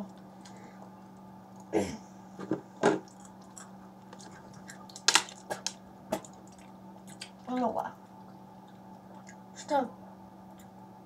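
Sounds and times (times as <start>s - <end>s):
steady low hum: 0.0s - 11.0s
boy chewing: 3.0s - 9.5s.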